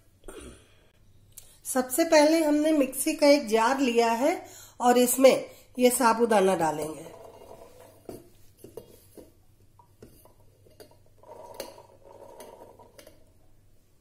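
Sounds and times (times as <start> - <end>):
faint scraping: 7.0 - 9.3.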